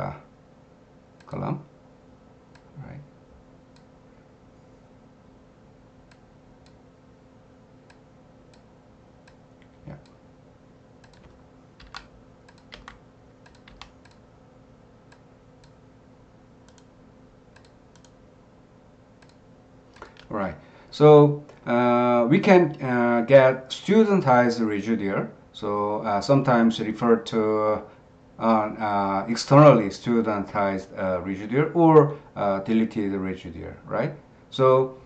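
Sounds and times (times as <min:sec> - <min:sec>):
faint steady hum: 0:00.0 - 0:35.0
computer keyboard and mouse clicks: 0:11.0 - 0:14.2, 0:16.6 - 0:16.9, 0:17.5 - 0:18.2, 0:19.2 - 0:20.3.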